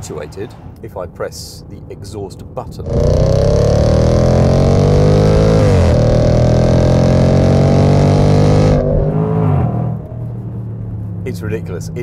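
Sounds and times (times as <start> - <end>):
car engine accelerating hard: 2.8 - 11.5.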